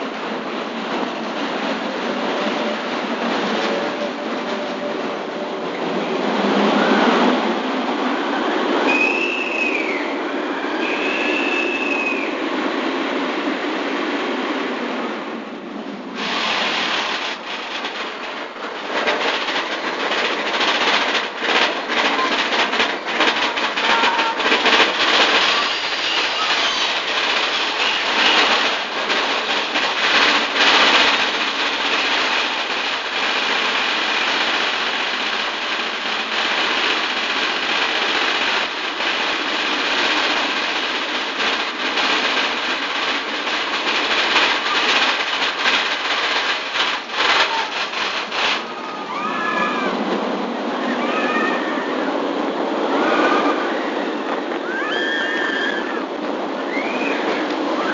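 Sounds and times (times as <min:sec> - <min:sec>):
roller coaster rattling on track: 0:00.0 - 0:57.9.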